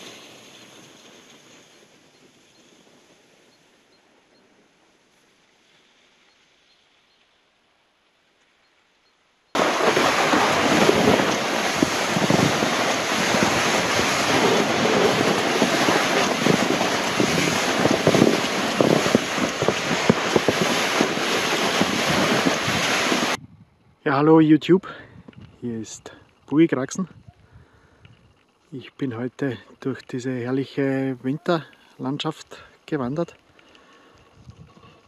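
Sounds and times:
sled scraping over snow: 0:00.0 - 0:03.9, 0:09.6 - 0:23.4
wind on microphone: 0:09.6 - 0:24.0, 0:25.1 - 0:25.6, 0:34.2 - 0:35.0.

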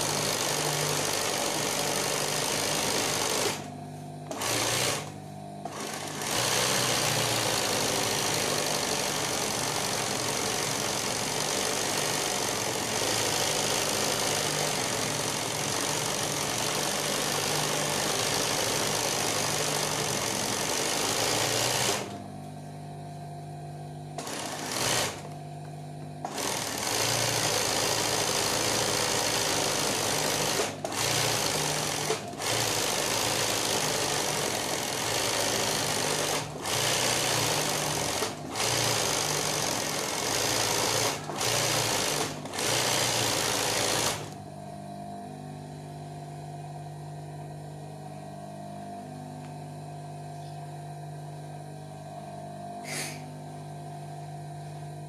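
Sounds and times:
sewing machine stitching fast: 0:00.0 - 0:22.2, 0:24.2 - 0:25.3, 0:26.2 - 0:44.4.

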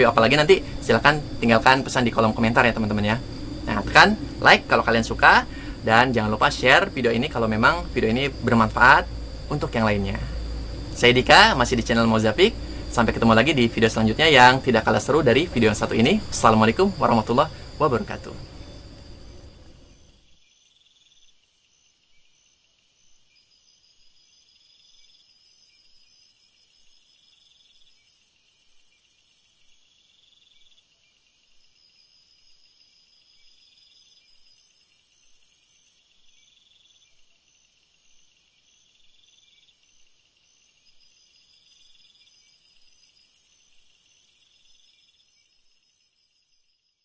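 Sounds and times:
very high hiss: 0:00.0 - 0:20.3
insects trilling and chirping: 0:00.0 - 0:47.0.

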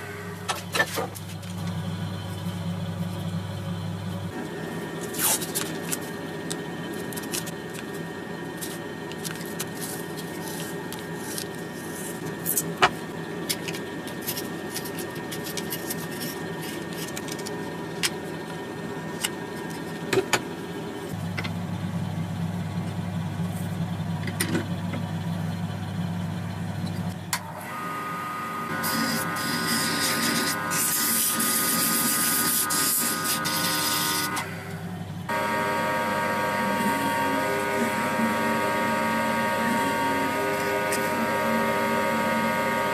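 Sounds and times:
power tool motor running: 0:27.5 - 0:42.9.

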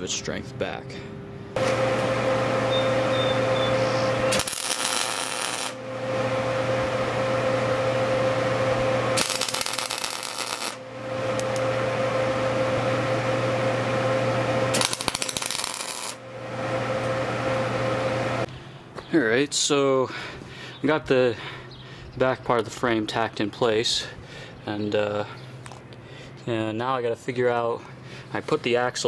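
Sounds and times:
low electrical hum: 0:00.0 - 0:29.0
welding arc crackling buzz: 0:01.6 - 0:18.5.

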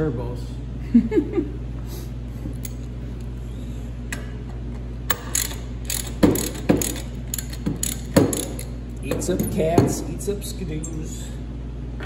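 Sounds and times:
steady low hum: 0:00.0 - 0:12.0
ratchet and socket clicking: 0:05.1 - 0:08.8
metal knocks: 0:06.0 - 0:10.1.

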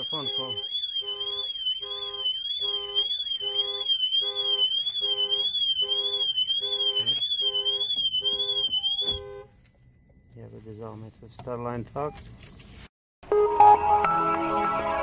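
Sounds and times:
car alarm siren warbling: 0:00.0 - 0:09.5
car horn blasts: 0:00.0 - 0:09.6.

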